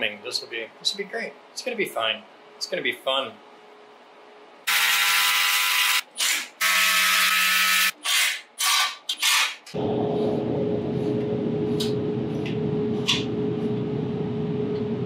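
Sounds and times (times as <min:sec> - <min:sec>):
steady hum with held tone: 0:09.8 - 0:15.0.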